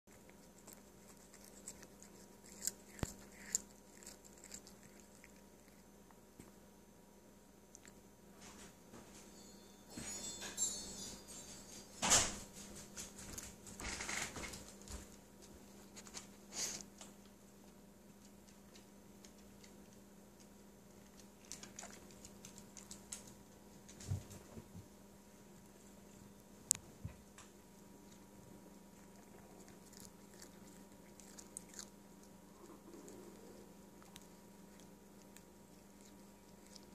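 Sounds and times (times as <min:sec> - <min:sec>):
cat chewing lettuce: 0:00.1 - 0:06.3, 0:13.3 - 0:24.0, 0:27.4 - 0:36.9.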